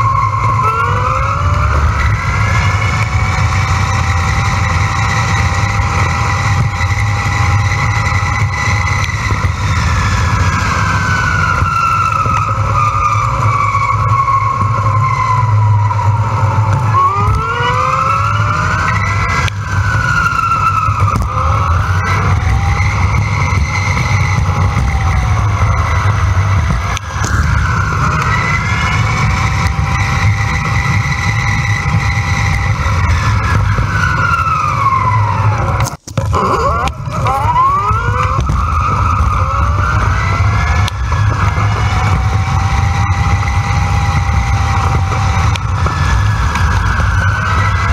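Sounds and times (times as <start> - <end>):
electric bike motor whining: 0.0 - 47.9
wind and road rumble: 0.0 - 47.9.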